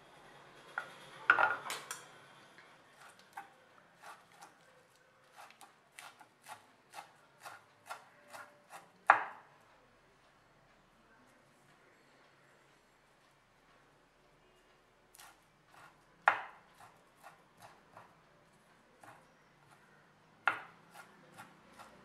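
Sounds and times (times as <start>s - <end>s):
knife chopping on wooden board: 15.2s - 18.1s, 20.5s - 22.0s.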